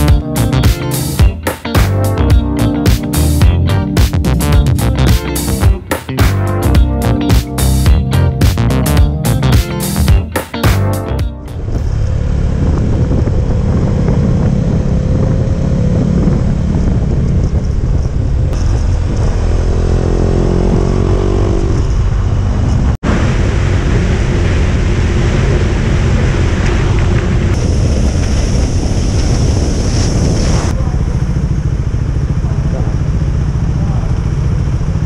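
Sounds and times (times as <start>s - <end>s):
motorcycle engine accelerating: 0.0s - 35.0s
wind noise on microphone: 11.5s - 32.1s.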